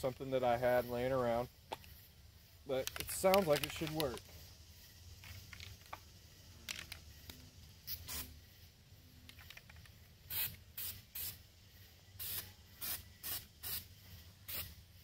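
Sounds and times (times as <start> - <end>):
aerosol can spraying: 2.8 - 8.4, 10.2 - 11.5, 12.1 - 14.9.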